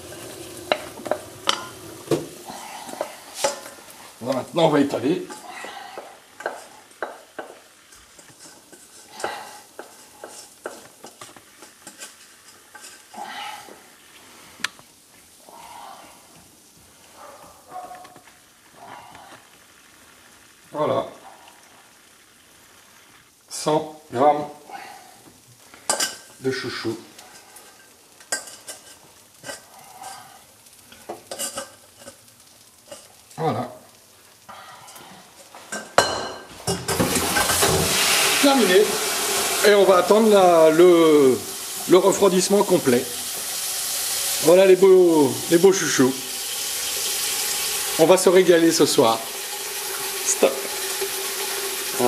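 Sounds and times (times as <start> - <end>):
spoon scraping a saucepan: 2.6 - 3.8, 5.3 - 13.1.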